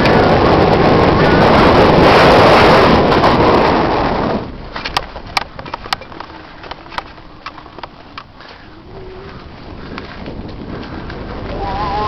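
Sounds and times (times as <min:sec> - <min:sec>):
bike tyre noise: 0:00.0 - 0:12.0
wind rushing over microphone: 0:00.0 - 0:12.0
sharp clicks and rattles: 0:04.7 - 0:08.7.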